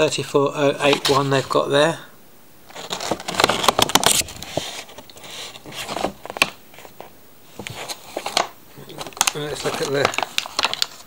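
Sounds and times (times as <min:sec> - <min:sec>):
packaging rustling and clicking: 0:02.7 - 0:11.0.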